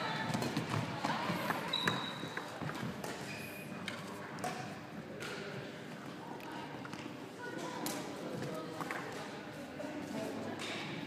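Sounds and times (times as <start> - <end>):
sports shoes squeaking: 1.4 - 2.6.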